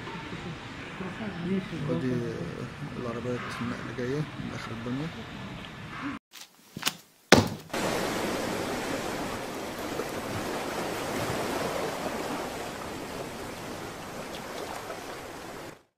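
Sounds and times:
ocean surf washing on beach: 7.7s - 15.9s.

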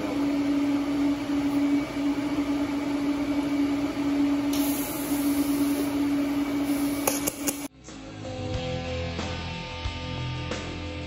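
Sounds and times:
steady machine hum: 0.0s - 7.7s.

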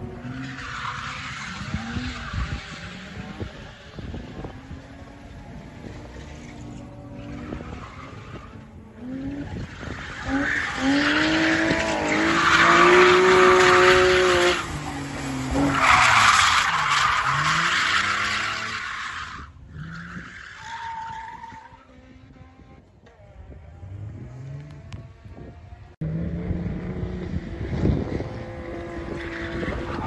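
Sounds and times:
car engine revving high: 1.5s - 18.7s.

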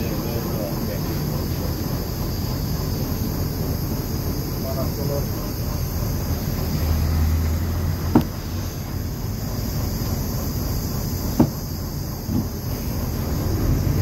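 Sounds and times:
bus engine rumble: 0.0s - 14.0s
sharp knocks: 11.4s - 11.7s.

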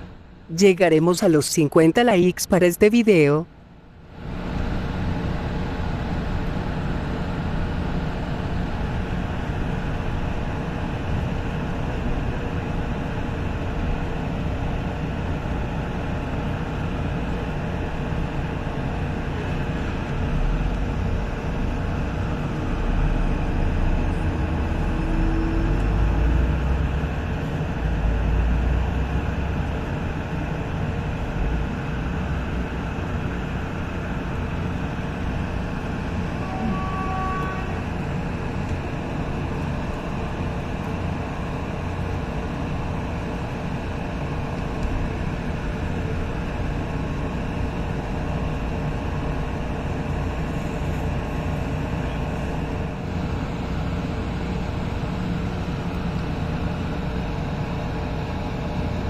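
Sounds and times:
train wheels rumbling on track: 18.7s - 32.4s.

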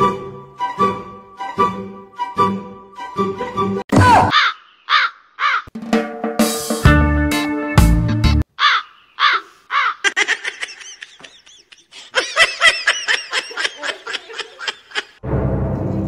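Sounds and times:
music: 0.0s - 3.8s, 5.8s - 8.4s, 15.2s - 16.0s.

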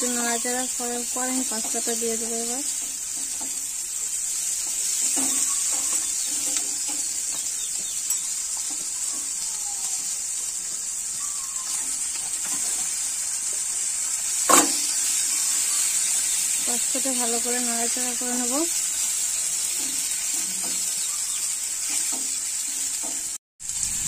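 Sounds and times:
spatula stirring: 0.0s - 9.4s, 15.3s - 21.2s
food sizzling in a frying pan: 0.0s - 24.0s.

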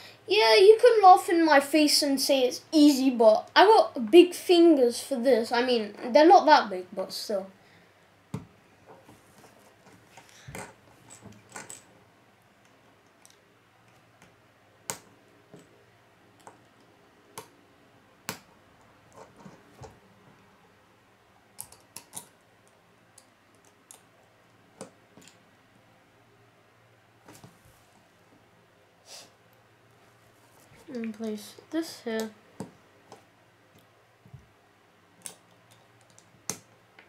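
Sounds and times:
plastic pieces clicking together: 21.6s - 24.0s.

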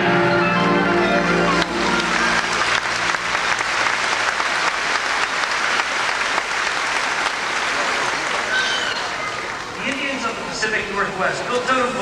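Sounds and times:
audience applauding: 1.2s - 10.2s.

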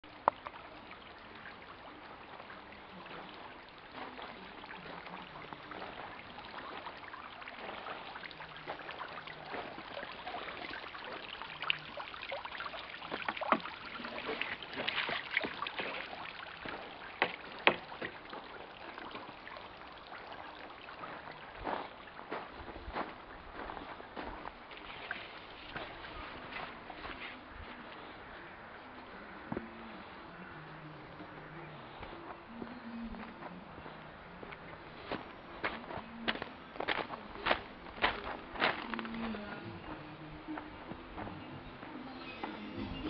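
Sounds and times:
water splashing and trickling: 0.0s - 43.0s
wood knocking against wood: 17.2s - 18.1s.

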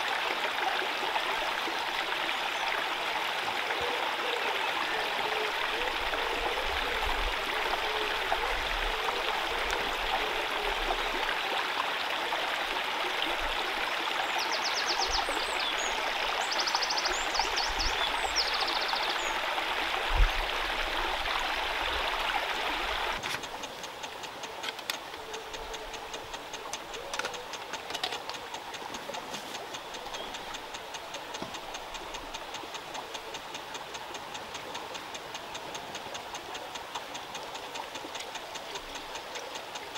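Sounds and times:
stream rushing: 0.0s - 39.9s
fast even ticking: 23.2s - 39.9s.

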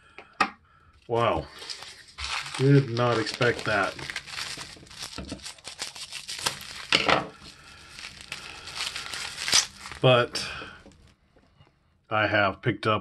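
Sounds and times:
plastic bag crinkling: 1.2s - 11.1s.

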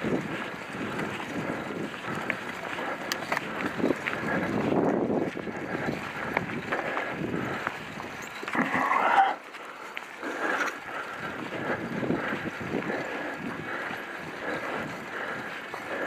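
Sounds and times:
rustling and knocks of walking: 0.0s - 16.0s.

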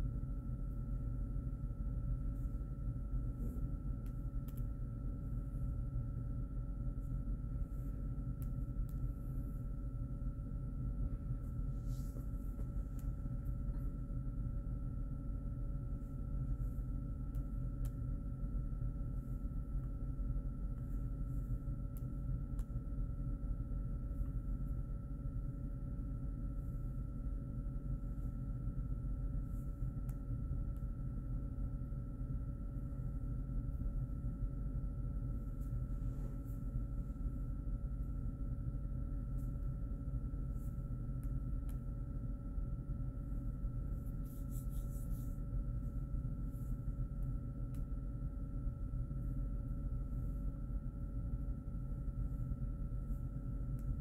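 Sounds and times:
faint whining tones: 0.0s - 54.0s
steady low hum: 0.0s - 54.0s.

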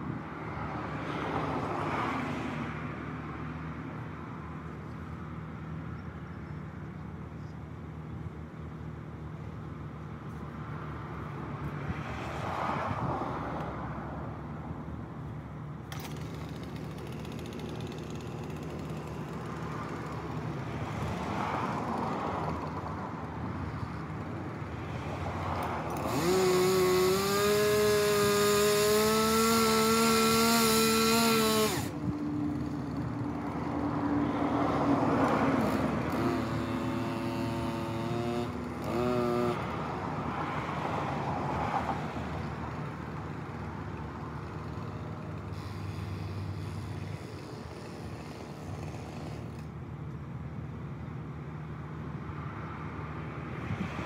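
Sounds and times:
chainsaw revving and idling: 15.8s - 40.8s, 41.8s - 49.7s.

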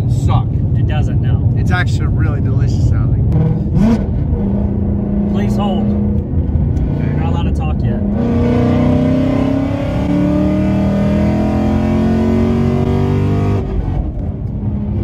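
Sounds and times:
car engine accelerating hard: 0.0s - 15.0s.

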